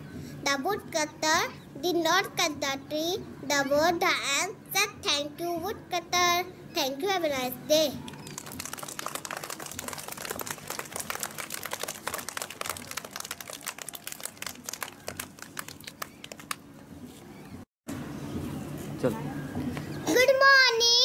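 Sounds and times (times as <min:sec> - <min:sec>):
children clapping: 0:08.1 - 0:16.6.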